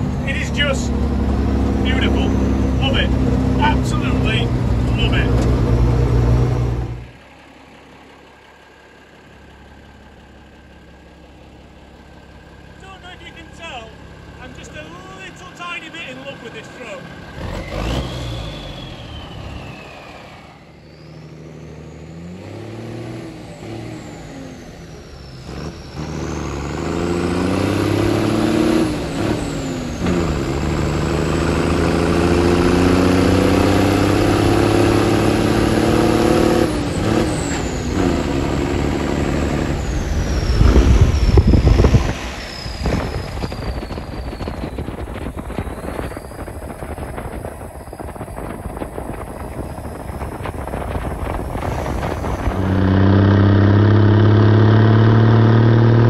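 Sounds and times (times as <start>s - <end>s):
high gear whine: 0.0s - 7.9s, 12.4s - 56.0s
truck engine revving: 0.0s - 7.9s, 12.7s - 56.0s
loud low rumble: 38.3s - 53.0s.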